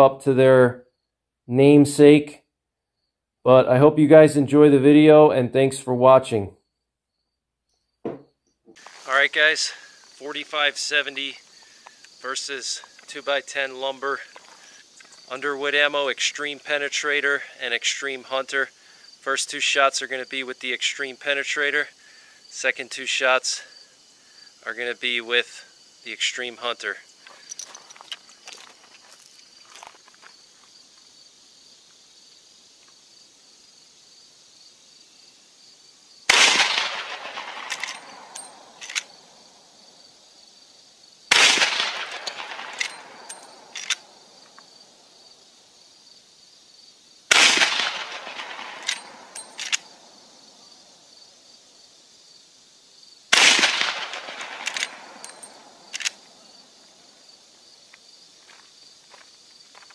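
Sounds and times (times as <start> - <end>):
rifle shots with echo: 36.3 - 39.0, 41.3 - 44.1, 47.3 - 50.0, 53.3 - 56.2
rifle lever clicks: 37.5 - 39.1, 42.0 - 44.0, 47.8 - 49.9, 53.6 - 56.2.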